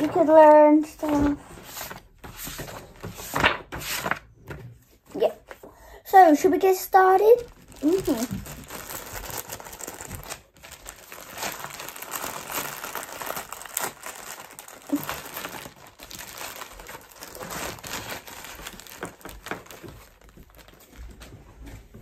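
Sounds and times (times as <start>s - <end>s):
plastic bags crinkling: 7.2s - 21.4s.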